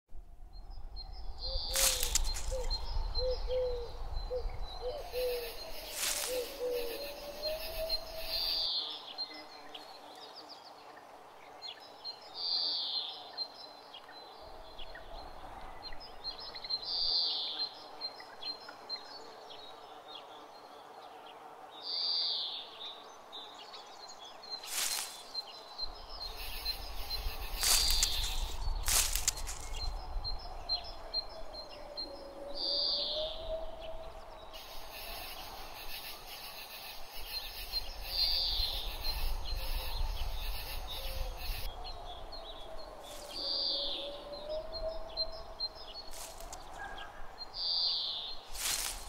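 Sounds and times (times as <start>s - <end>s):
low wind rumble: 0.1s - 8.7s, 23.1s - 49.0s
light breeze: 0.1s - 49.0s
birds calling and chirping: 0.6s - 10.7s, 21.9s - 49.0s.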